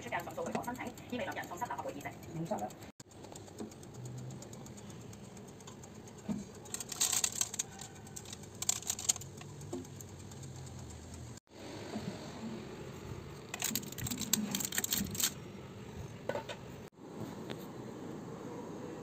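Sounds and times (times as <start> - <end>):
baking paper crinkling: 6.7 - 9.4, 13.6 - 15.4.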